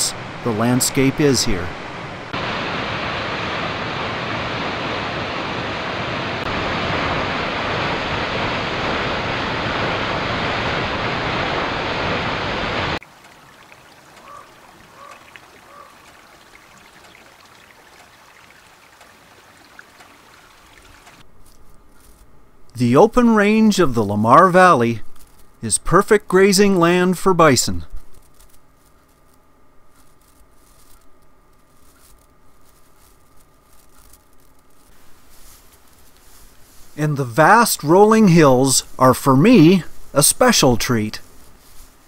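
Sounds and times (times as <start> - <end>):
waterfall rushing: 0.0 - 21.2
faint ticks: 13.2 - 21.2
faint short calls: 13.8 - 17.7.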